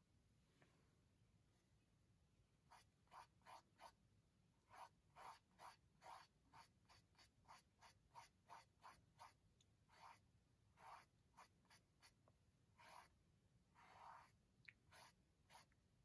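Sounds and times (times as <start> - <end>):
paintbrush strokes on canvas: 12.8 - 13.1, 13.8 - 15.7.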